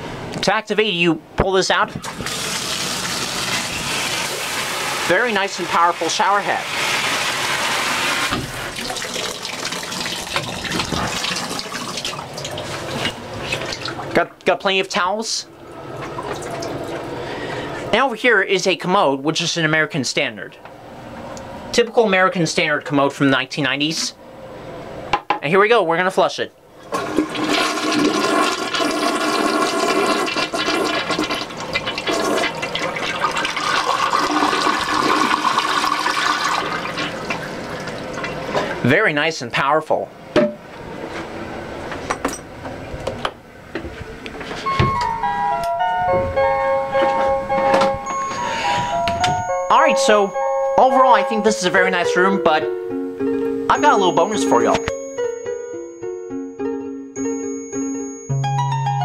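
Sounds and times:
shower spraying into bathtub: 0:02.0 - 0:14.0
toilet flushing: 0:02.0 - 0:14.2, 0:15.5 - 0:17.9, 0:26.8 - 0:38.8.

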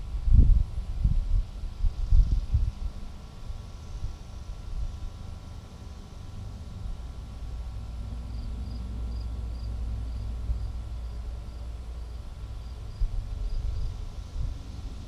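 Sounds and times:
wind buffeting microphone: 0:00.0 - 0:05.0, 0:12.8 - 0:15.0.

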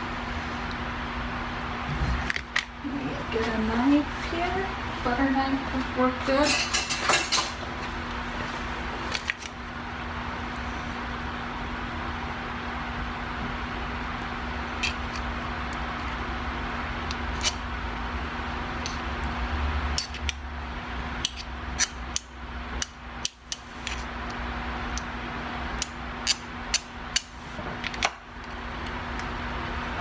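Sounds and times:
low background hum: 0:00.0 - 0:30.0
knife tapping and scraping: 0:21.2 - 0:24.0.

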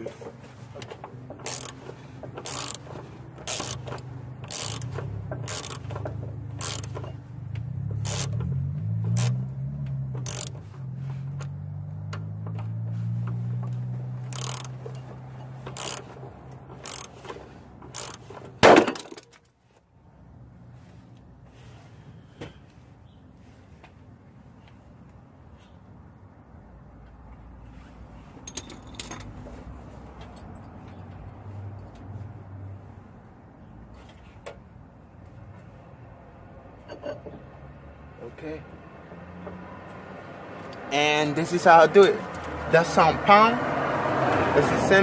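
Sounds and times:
ratchet wrench clicking: 0:01.4 - 0:07.2, 0:07.9 - 0:09.5, 0:10.2 - 0:10.6, 0:14.2 - 0:15.0, 0:15.6 - 0:16.2, 0:16.8 - 0:18.3.

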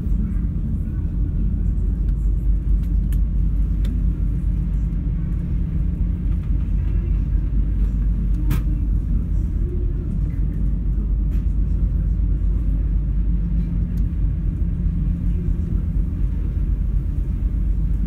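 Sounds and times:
ship engines rumbling: 0:00.0 - 0:18.0.

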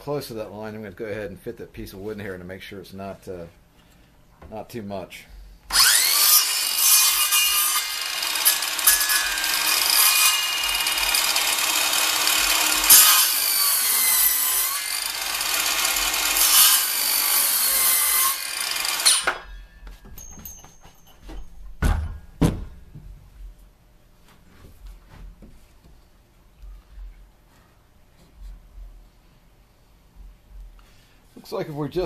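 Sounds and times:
circular saw cutting wood: 0:05.7 - 0:19.5
dull thumps: 0:19.8 - 0:23.6.

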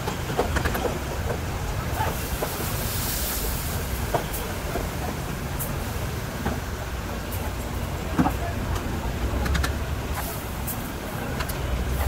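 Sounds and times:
water pouring and splashing: 0:02.1 - 0:06.2.

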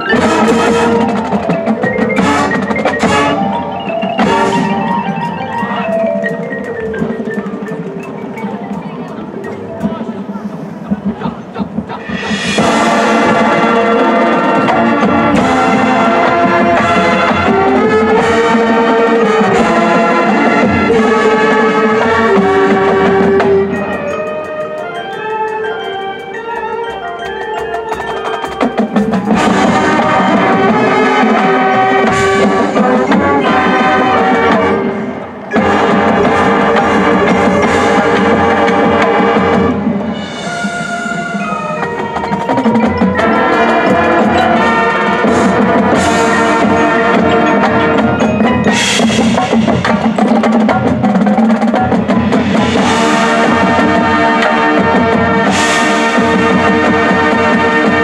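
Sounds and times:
marimbas and vibraphones: 0:00.0 - 0:12.9, 0:22.0 - 0:30.8, 0:34.7 - 0:54.2
brass instruments: 0:00.0 - 0:58.0
marching drumline: 0:00.0 - 0:58.0.

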